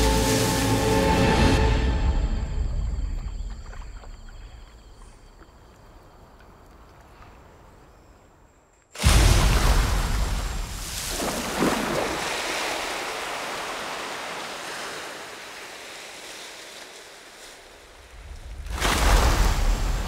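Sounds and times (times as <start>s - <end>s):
heavy splashes of water: 0.0s - 1.8s, 9.0s - 20.0s.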